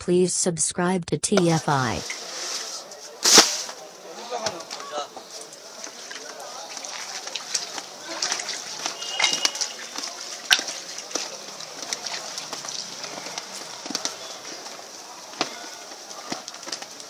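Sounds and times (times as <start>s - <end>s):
steady outdoor hiss: 1.4s - 17.0s
dough flapping between hands: 5.7s - 17.0s.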